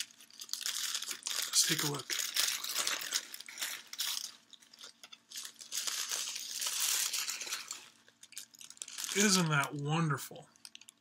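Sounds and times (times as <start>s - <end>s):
paper wrapping crinkling: 0.0s - 11.0s.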